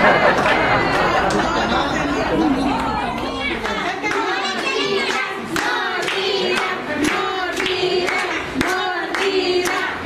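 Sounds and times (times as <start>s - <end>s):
children singing together: 2.8s - 10.0s
hand claps keeping time: 5.0s - 10.0s.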